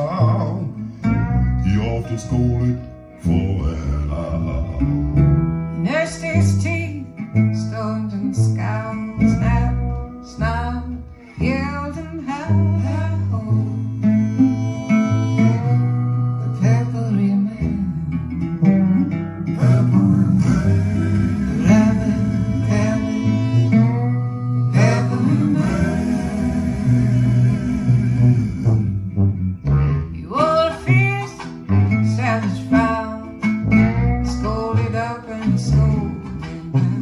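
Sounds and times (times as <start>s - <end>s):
person singing: 0.0s - 5.2s, 19.6s - 29.0s, 30.3s - 37.0s
deep bass line: 0.0s - 37.0s
plucked guitar: 0.0s - 37.0s.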